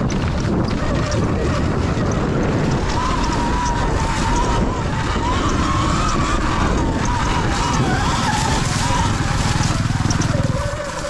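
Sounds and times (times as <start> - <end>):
electric motor whine: 0.0 - 11.0
wind rumble on microphone: 0.0 - 11.0.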